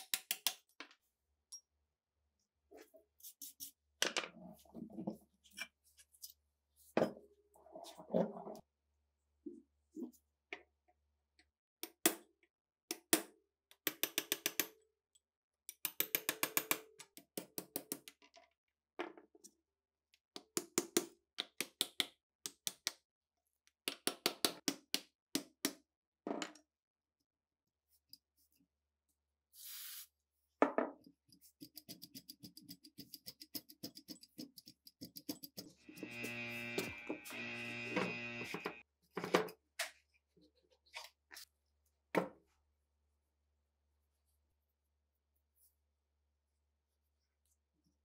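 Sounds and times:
hand tool strokes on metal: 35.8 - 38.8.

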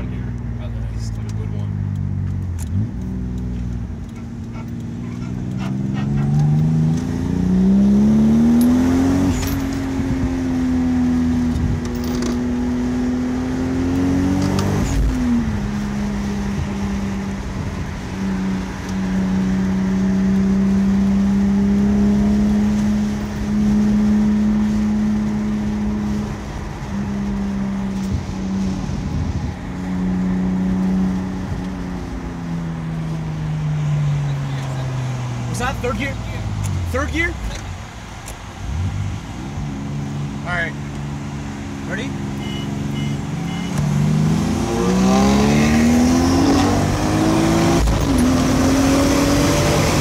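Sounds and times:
gear change: 0.0 - 10.2
car engine accelerating from cabin: 0.0 - 37.5, 38.7 - 50.0.

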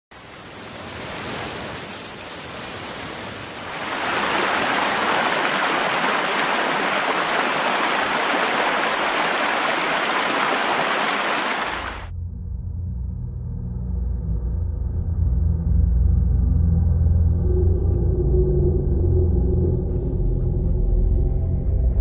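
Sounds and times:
heavy rain with wind: 0.1 - 12.1
river torrent rushing: 0.4 - 12.1
low rumble: 12.1 - 22.0.

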